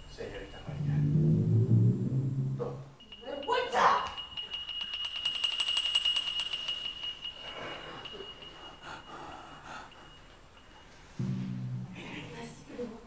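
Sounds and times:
high bell-like ringing tone: 0.0 - 12.4
fast rattling trill: 3.0 - 11.0.

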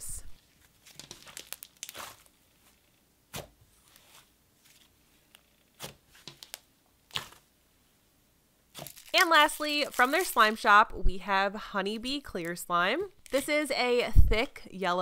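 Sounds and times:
slime squishing by hand: 0.4 - 7.5, 8.7 - 10.5.

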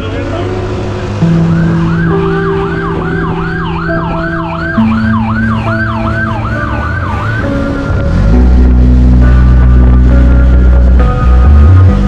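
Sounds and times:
steady low drone: 0.0 - 12.0
police siren sweeps: 1.2 - 8.4.

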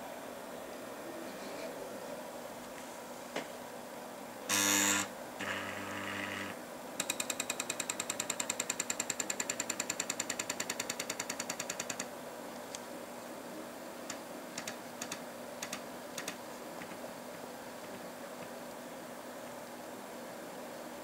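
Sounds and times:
stepper motor buzzing whine: 4.5 - 6.6.

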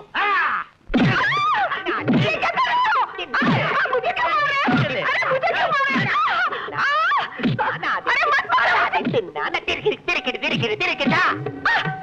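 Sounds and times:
person crying out: 0.0 - 9.0.

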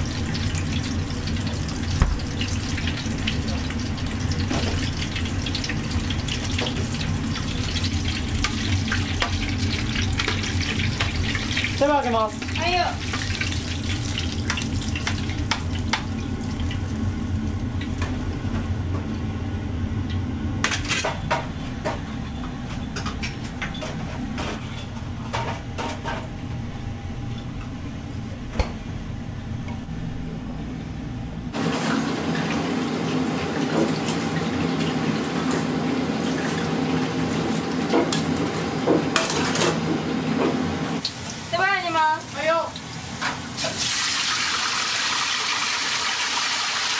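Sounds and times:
steady low hum: 0.0 - 31.6.

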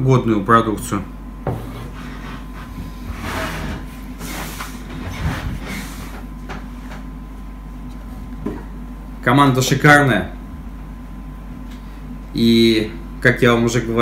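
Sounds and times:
rustling and scraping on wooden table: 1.4 - 7.1.

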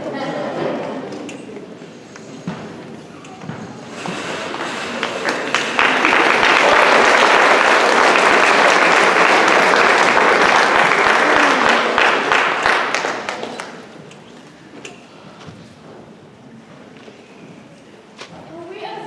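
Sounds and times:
audience applauding: 4.4 - 14.0.

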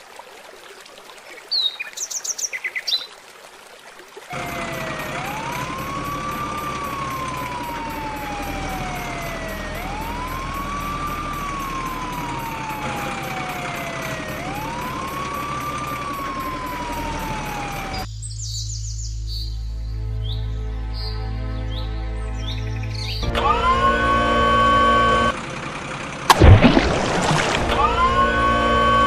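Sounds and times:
wailing siren: 4.3 - 18.1, 23.2 - 25.4, 27.3 - 29.0.

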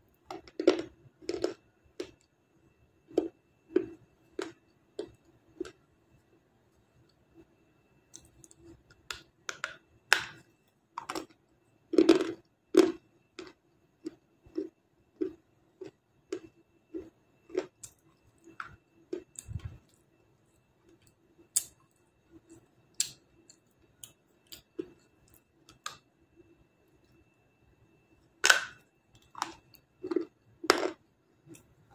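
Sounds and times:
crunching and chewing clay: 0.2 - 2.3, 3.1 - 5.8, 8.1 - 20.1, 28.4 - 31.9.

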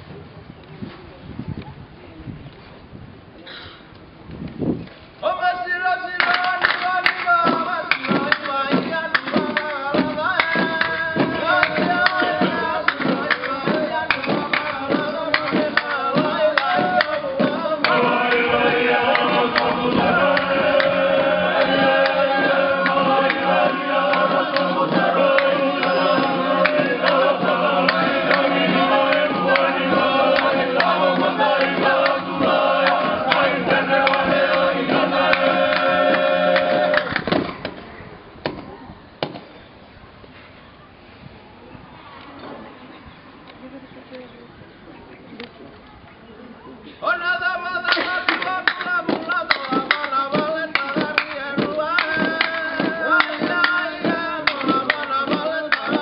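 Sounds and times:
background sound: 5.3 - 38.8
group singing in harmony: 6.2 - 37.5, 47.2 - 56.0
quick rhythmic beat: 6.2 - 37.6, 47.8 - 56.0.

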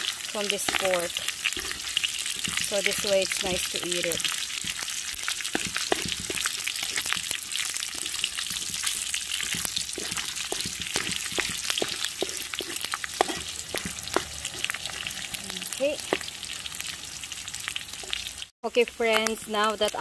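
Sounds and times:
wooden spatula scraping a pan: 0.0 - 15.4
pork sizzling in a wok: 0.0 - 20.0
spitting fat pops and crackles: 3.6 - 16.4.

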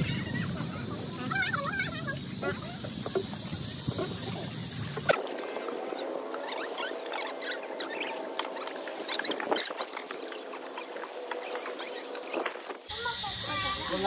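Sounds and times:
oars creaking and squeaking: 0.0 - 14.0
oars splashing in water: 2.4 - 12.9.

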